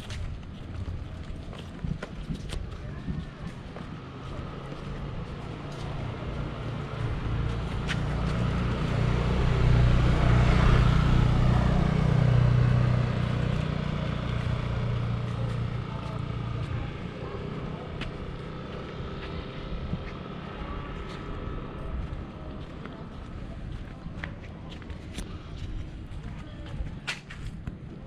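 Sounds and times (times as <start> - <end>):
vehicle engine passing: 3.8 - 23.6.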